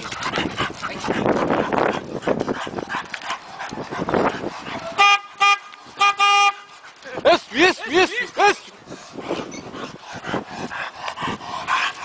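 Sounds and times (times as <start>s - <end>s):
dog breathing hard: 0.0s - 5.0s, 6.7s - 7.2s, 8.6s - 12.0s
car horn honks: 5.0s - 6.7s.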